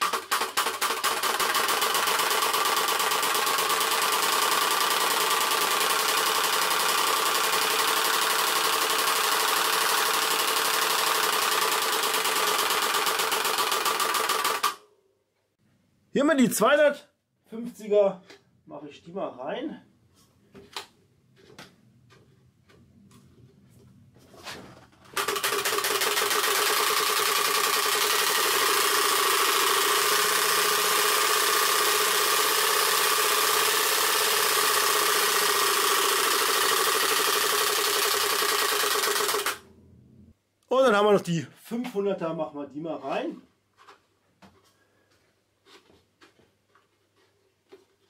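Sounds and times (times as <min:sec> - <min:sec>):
card rattling against spokes: 0:25.1 - 0:39.6.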